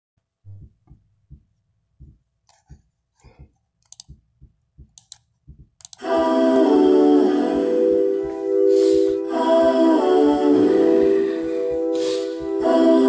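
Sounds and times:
soft low thumps: 0:00.4 - 0:05.9
sharp clicks: 0:02.5 - 0:06.1.

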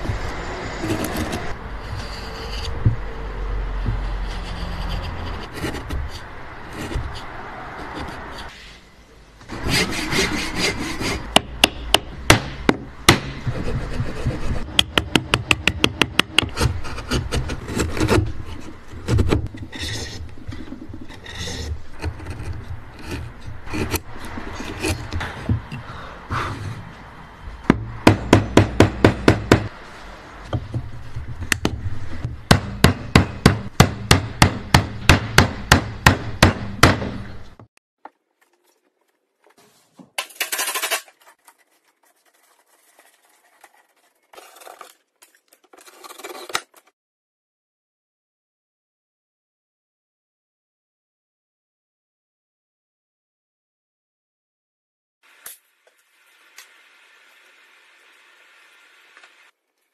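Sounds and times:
chisel scraping wood: 0:00.7 - 0:03.0, 0:03.8 - 0:08.7, 0:09.5 - 0:11.4, 0:13.4 - 0:25.8.

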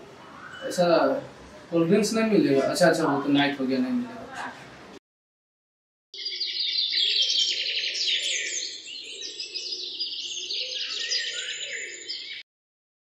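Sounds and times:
songbirds chirping and trilling: 0:00.0 - 0:04.0, 0:06.2 - 0:12.4.

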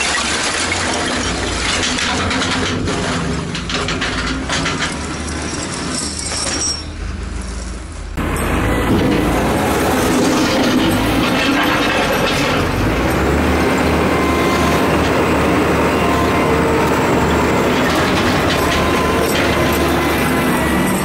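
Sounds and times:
tire chains clanking: 0:00.0 - 0:21.0
diesel engine running: 0:07.2 - 0:21.0.

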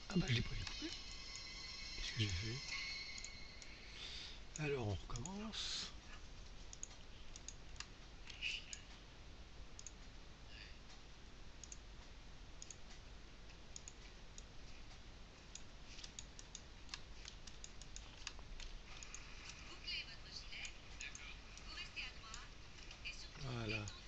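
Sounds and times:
steady low hum: 0:00.0 - 0:24.0
computer mouse clicks: 0:04.5 - 0:05.4, 0:06.4 - 0:09.0, 0:09.7 - 0:10.1, 0:11.6 - 0:23.1.

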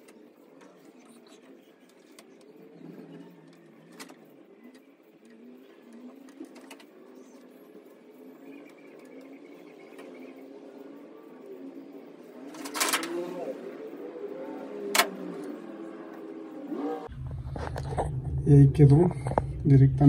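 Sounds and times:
faint distant voices: 0:00.0 - 0:17.1.

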